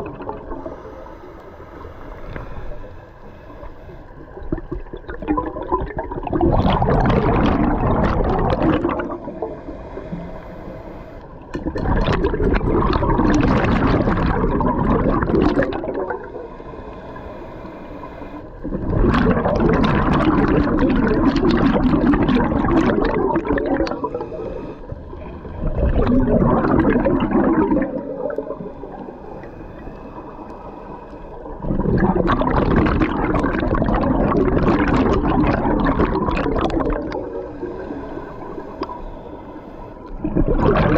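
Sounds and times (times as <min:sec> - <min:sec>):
diver bubbling exhalations: 0:04.5 - 0:09.5, 0:11.6 - 0:16.3, 0:18.6 - 0:24.3, 0:25.4 - 0:28.7, 0:31.6 - 0:37.5, 0:40.2 - 0:40.9.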